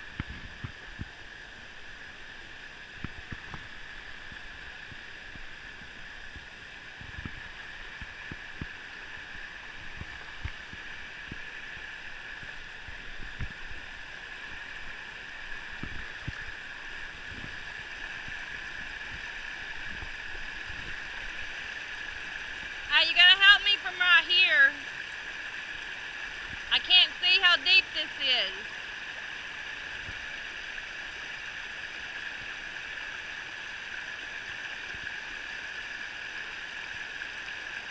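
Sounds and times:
river water rushing over rocks: 0.0 - 37.9.

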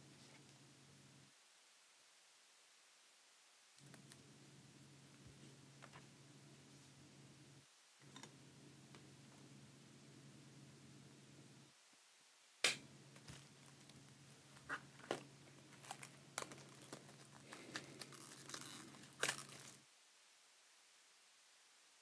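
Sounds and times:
plastic wrappers crinkling: 13.2 - 19.8.

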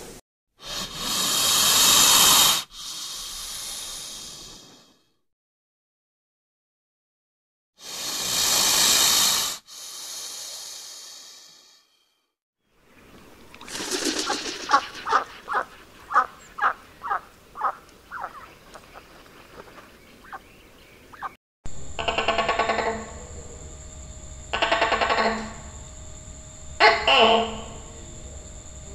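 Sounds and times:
snake hissing: 0.6 - 5.1, 7.8 - 12.2, 13.6 - 18.5
duck quacking: 14.1 - 19.1, 21.1 - 21.4.

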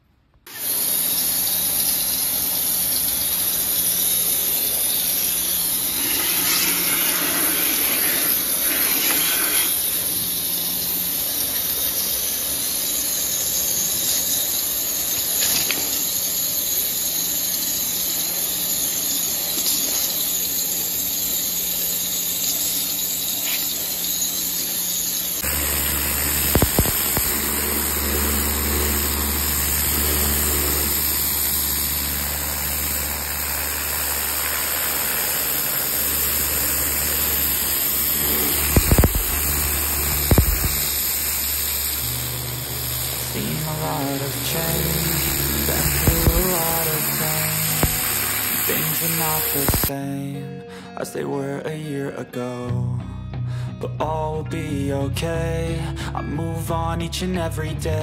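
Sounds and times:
pressure washer motor humming: 0.4 - 49.9
water jet hissing: 0.5 - 49.9
deeper hum: 25.4 - 49.9.

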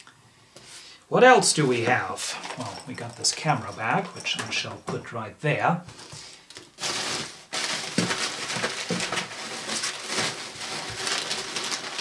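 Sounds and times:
packaging rustling and crinkling: 1.8 - 4.8, 5.9 - 12.0.

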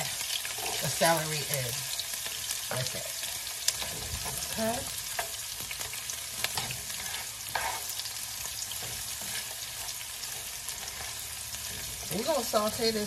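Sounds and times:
spatula scraping a pan: 0.0 - 1.2, 3.7 - 12.7
peppers sizzling in oil: 0.0 - 13.0.

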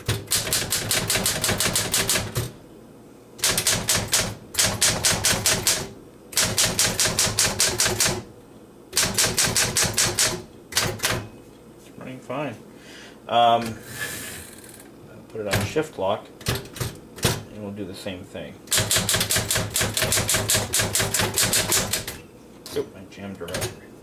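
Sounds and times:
manual typewriter typing: 0.0 - 2.5, 3.4 - 8.3, 9.0 - 11.2, 18.7 - 22.2.

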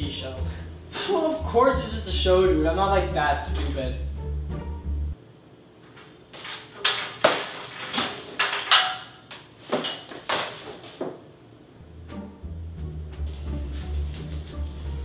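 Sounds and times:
sharp knocks and clatters: 6.4 - 11.2.

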